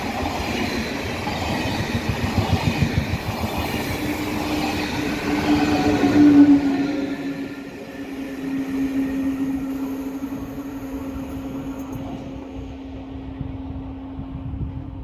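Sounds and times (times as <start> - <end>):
high-speed train receding: 0.0 - 15.0
wind rumble on microphone: 1.2 - 5.2, 11.8 - 15.0.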